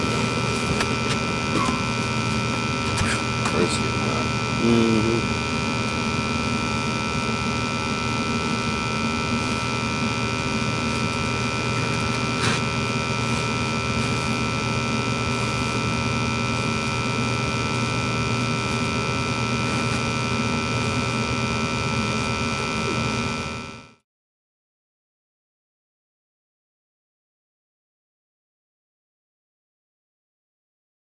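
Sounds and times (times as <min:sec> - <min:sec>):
electric motor hum with whine: 0:00.0 - 0:24.0.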